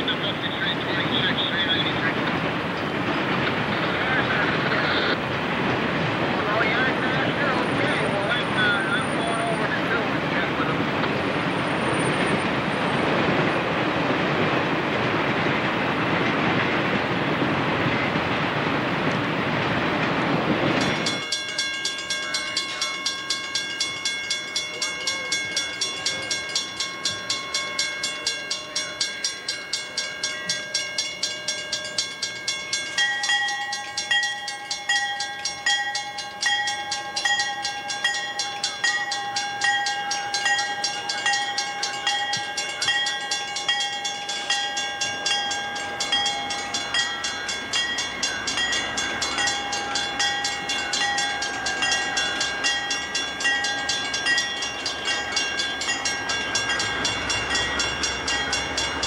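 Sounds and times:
freight cars rumbling: 0:00.0 - 0:59.0
railroad crossing bell ringing: 0:00.0 - 0:59.0
lower ringing tone: 0:20.8 - 0:59.0.

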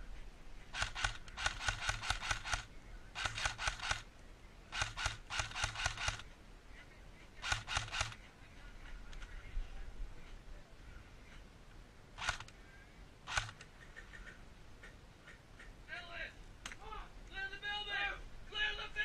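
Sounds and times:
airsoft gun rapid shots: 0:00.7 - 0:04.0, 0:04.7 - 0:06.2, 0:07.4 - 0:08.2, 0:13.3 - 0:13.6.

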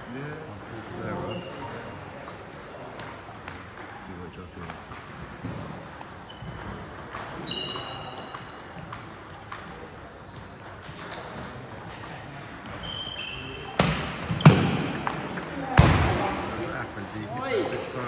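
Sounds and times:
table tennis ball hits: 0:00.6 - 0:04.0, 0:04.6 - 0:16.5
short high squeaks: 0:06.3 - 0:08.2, 0:12.8 - 0:13.8, 0:16.4 - 0:18.0.

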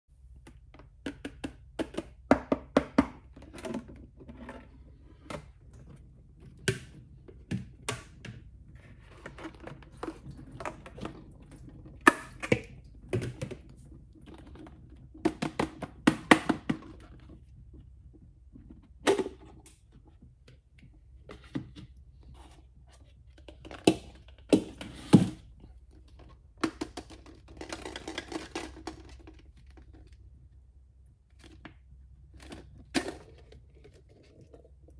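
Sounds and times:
plastic eggs clicking and knocking: 0:00.2 - 0:04.1, 0:25.9 - 0:30.3
plastic rubbing and scraping: 0:03.3 - 0:16.1.

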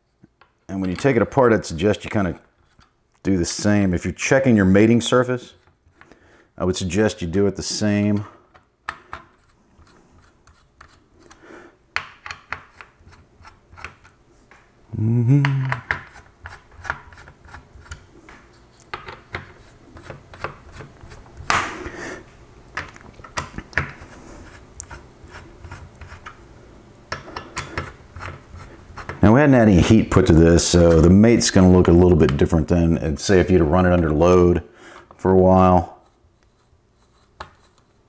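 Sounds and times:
screwdriver clicking and scraping: 0:08.9 - 0:11.4, 0:12.2 - 0:14.2
person humming: 0:14.9 - 0:16.0.

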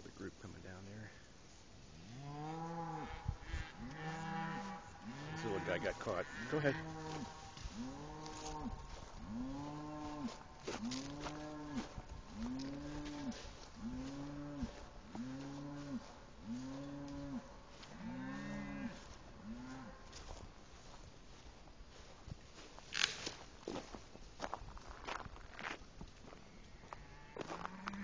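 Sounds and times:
cattle mooing: 0:02.0 - 0:20.2, 0:26.9 - 0:28.0.

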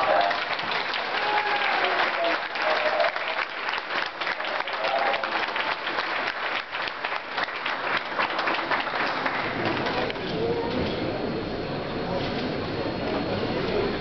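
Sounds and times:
crowd applauding: 0:00.0 - 0:10.3
faint voices: 0:08.8 - 0:14.0.

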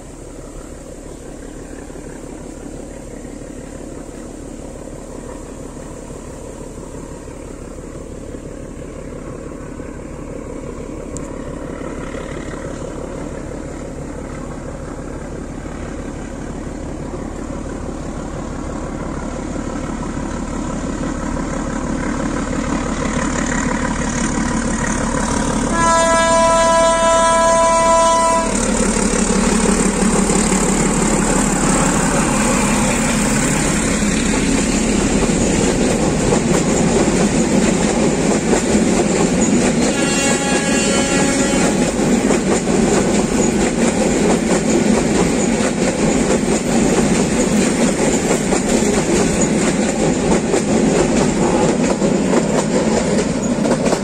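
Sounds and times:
train passing with wheel noise: 0:00.0 - 0:54.0
locomotive horn: 0:25.7 - 0:29.0, 0:39.8 - 0:42.0.

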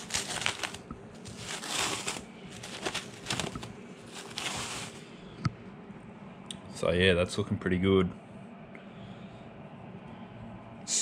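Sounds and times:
cling wrap crinkling: 0:00.0 - 0:05.1.

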